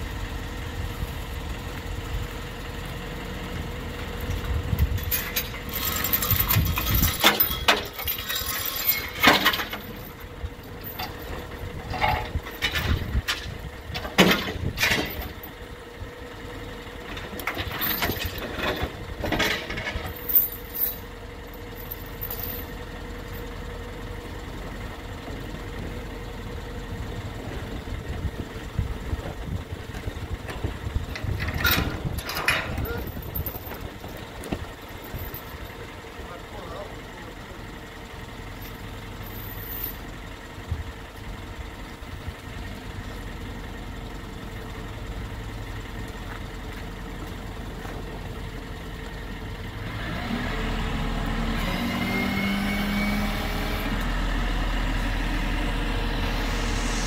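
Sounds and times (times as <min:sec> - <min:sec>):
diesel truck engine idling: 0:00.0 - 0:57.0
metal clanks and rattles: 0:04.2 - 0:15.6, 0:17.0 - 0:22.8, 0:29.9 - 0:35.8.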